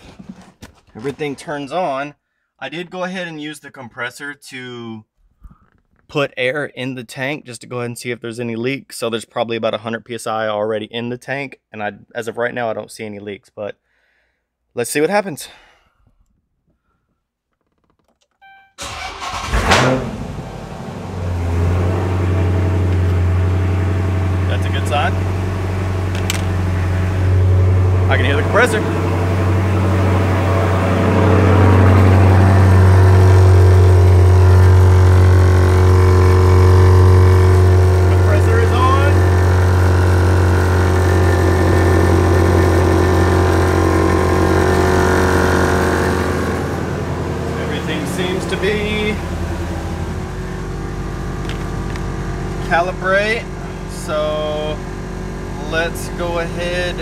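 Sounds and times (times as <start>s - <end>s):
short beep: 18.4s - 18.8s
air compressor humming: 18.8s - 57.0s
car engine starting and idling: 18.8s - 57.0s.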